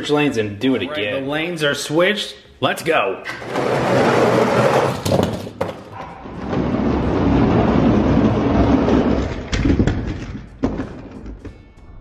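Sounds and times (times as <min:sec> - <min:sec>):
toy trucks rolling on plastic track: 0:06.4 - 0:11.3.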